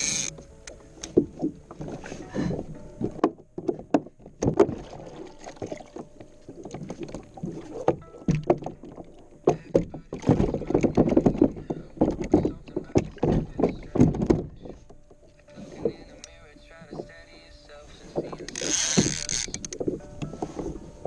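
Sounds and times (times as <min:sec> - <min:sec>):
hard plastic knocks and clunks: 0:01.0 - 0:04.9, 0:06.7 - 0:16.0.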